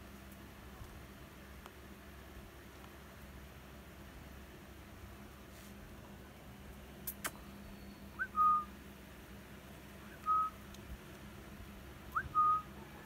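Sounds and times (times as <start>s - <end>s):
sharp clicks: 7.0s - 7.4s
person whistling short notes: 8.2s - 8.7s, 10.2s - 10.6s, 12.2s - 12.6s.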